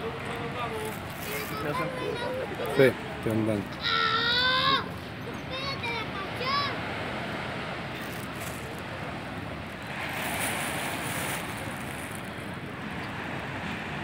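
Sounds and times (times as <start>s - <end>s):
wind buffeting microphone: 7.6s - 14.0s.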